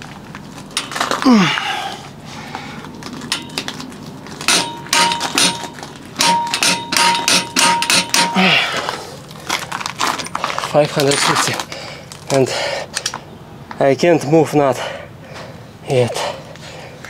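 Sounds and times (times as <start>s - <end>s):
torque wrench clicking: 4.5s - 8.4s.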